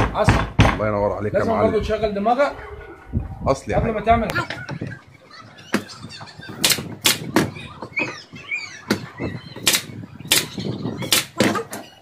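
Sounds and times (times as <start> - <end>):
nail gun shots: 6.6 - 7.3, 9.6 - 11.6.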